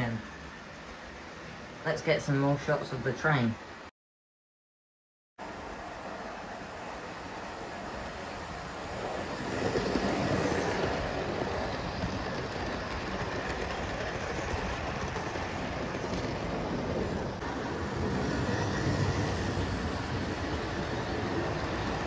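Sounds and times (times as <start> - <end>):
model train rumbling on track: 5.4 - 22.0.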